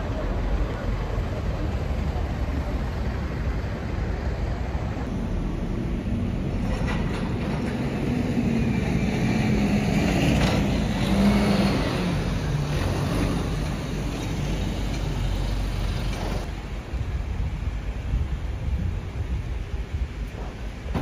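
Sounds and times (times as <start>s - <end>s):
city street traffic: 0.0s - 21.0s
vehicle engine passing by: 7.7s - 16.5s.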